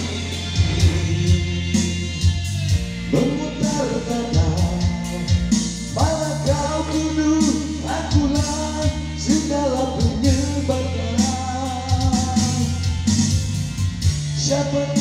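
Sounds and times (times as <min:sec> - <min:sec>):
man singing into microphone: 0:00.0 - 0:02.4, 0:03.1 - 0:13.0, 0:14.3 - 0:15.0
backing track over loudspeakers: 0:00.0 - 0:15.0.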